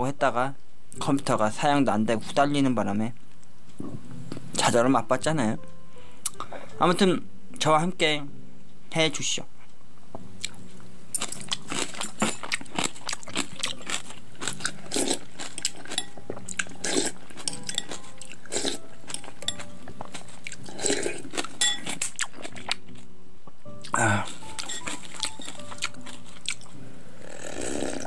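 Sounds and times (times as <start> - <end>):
chewing and crunching: 10.4 - 23.0, 23.8 - 26.7.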